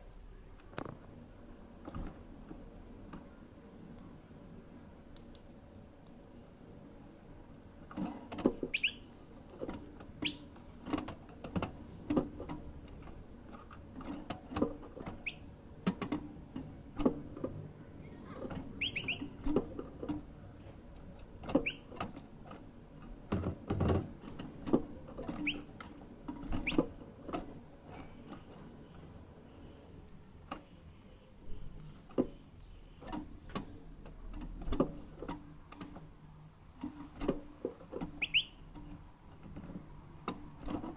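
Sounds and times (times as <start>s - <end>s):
bird chirping: 8.6s - 9.2s, 10.2s - 10.6s, 15.2s - 15.5s, 18.1s - 19.4s, 21.6s - 22.2s, 25.3s - 25.7s, 38.1s - 38.7s.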